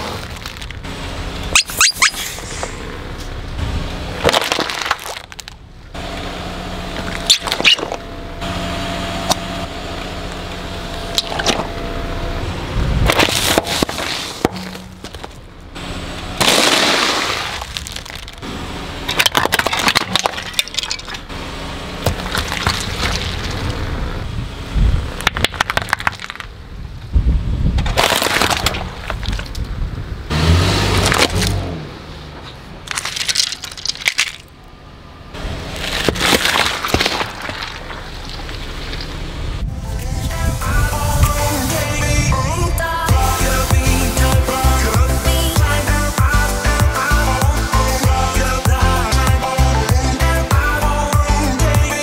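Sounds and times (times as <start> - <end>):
tyre crushing plastic objects: 0.0 - 0.8, 4.2 - 5.6, 13.1 - 15.4, 16.4 - 18.4, 19.1 - 21.2, 27.8 - 29.6, 32.9 - 34.5, 35.7 - 39.0.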